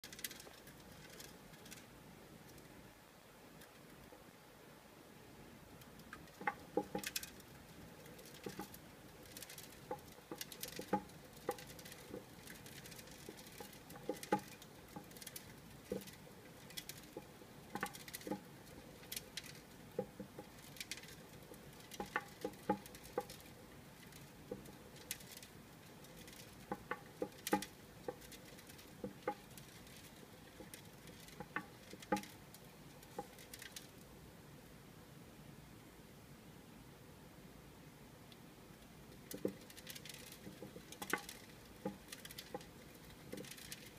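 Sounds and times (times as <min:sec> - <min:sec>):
hedgehog feet tapping plastic wheel: 0:05.9 - 0:34.0, 0:39.1 - 0:43.9.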